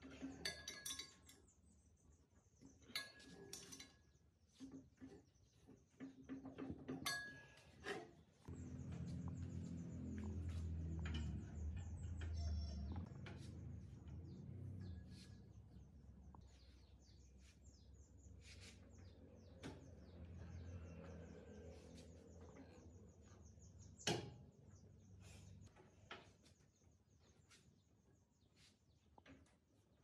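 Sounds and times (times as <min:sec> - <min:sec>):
low hum: 0:08.4 - 0:16.6
faint bird chirping: 0:08.4 - 0:30.0.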